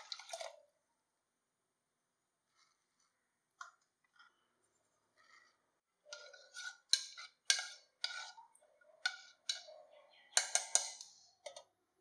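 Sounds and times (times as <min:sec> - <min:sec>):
metal spoon clinking in pot: 0:06.1 - 0:11.7.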